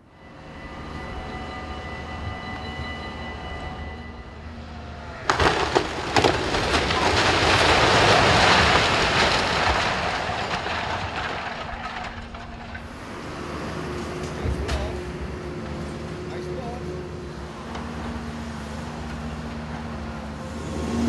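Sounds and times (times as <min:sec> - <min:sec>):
crashing rumble of falling bricks: 0:05.2 - 0:15.4
sharp cracks: 0:05.3 - 0:12.8.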